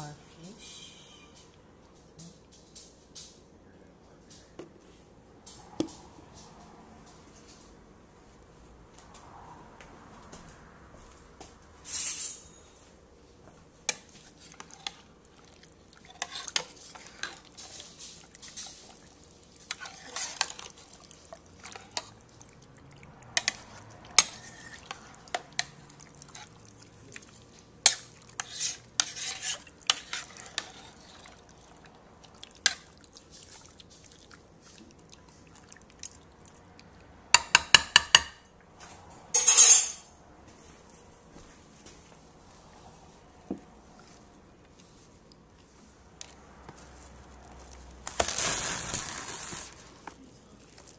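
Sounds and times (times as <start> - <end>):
utensils clinking against bowl: 23.4 - 26.5, 39.4 - 40.1.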